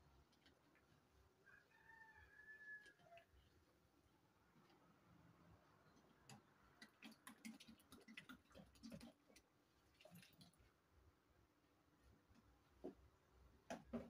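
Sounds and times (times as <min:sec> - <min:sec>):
stick stirring liquid in basin: 0:05.8 - 0:10.8
water pouring from jerrycan: 0:06.8 - 0:10.7.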